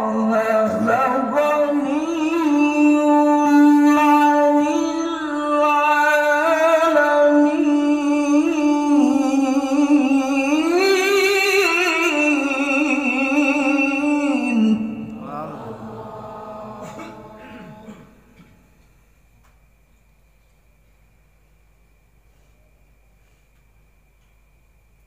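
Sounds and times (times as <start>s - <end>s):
man chanting into a microphone: 0.0s - 18.3s.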